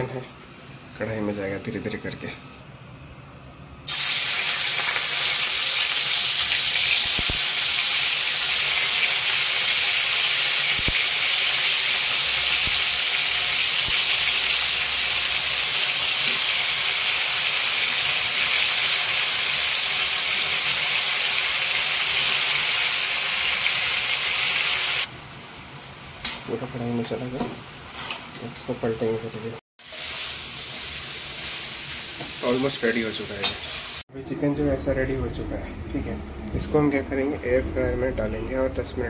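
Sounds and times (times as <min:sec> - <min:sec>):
chicken sizzling in hot oil: 0:03.9 - 0:25.1, 0:29.8 - 0:34.0.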